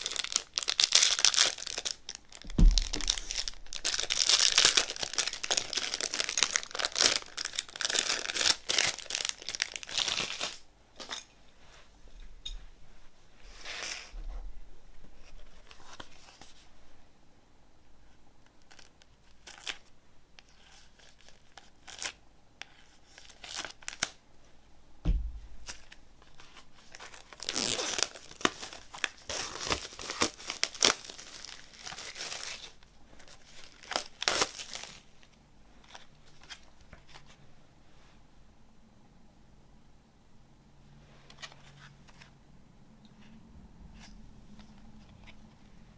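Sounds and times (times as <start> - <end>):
plastic wrap crinkling: 0.0 - 10.6, 22.9 - 24.2, 25.1 - 37.4
soft thump: 2.4 - 3.2, 25.0 - 25.6.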